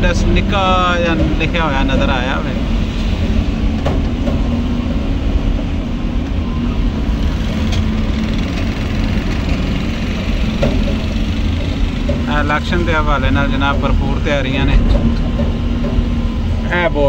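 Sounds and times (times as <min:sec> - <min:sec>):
vehicle engine running: 0:00.0 - 0:17.0
wind rumble on microphone: 0:00.0 - 0:17.0.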